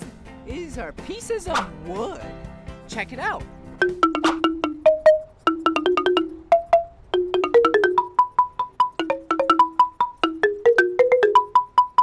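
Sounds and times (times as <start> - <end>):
marimba notes ringing: 3.8 - 12.0.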